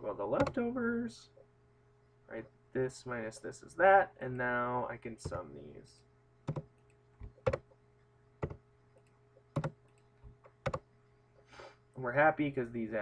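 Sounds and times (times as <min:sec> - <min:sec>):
keyboard keystroke clicks: 0:06.5 - 0:07.6, 0:09.6 - 0:10.8.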